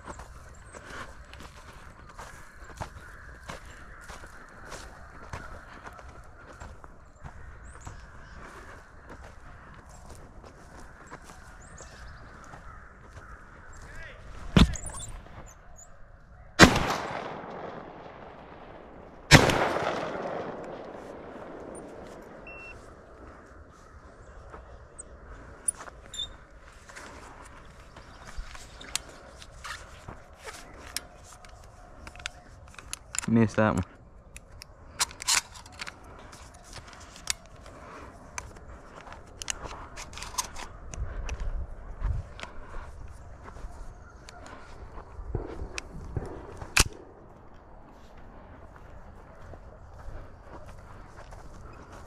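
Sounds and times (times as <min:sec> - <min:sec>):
footsteps through dry grass: 0:00.0 - 0:52.0
shotgun shots with echo: 0:16.6 - 0:22.7
shotgun clicks and rattles: 0:30.9 - 0:33.7, 0:34.3 - 0:37.7, 0:38.3 - 0:41.4, 0:45.4 - 0:47.1.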